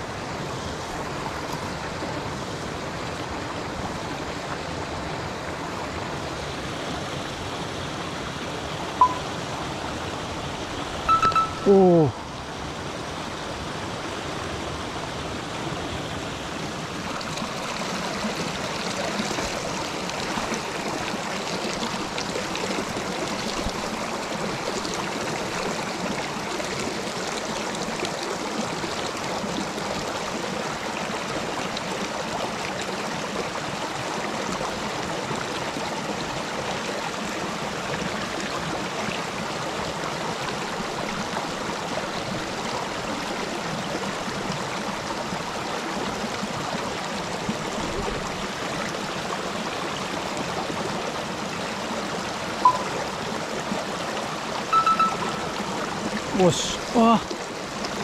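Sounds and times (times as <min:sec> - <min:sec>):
creek flowing over stones: 0:00.0 - 0:58.0.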